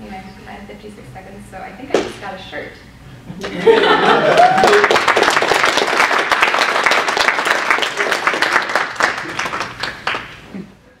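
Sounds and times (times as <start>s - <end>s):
audience applauding: 3.7s - 10.4s.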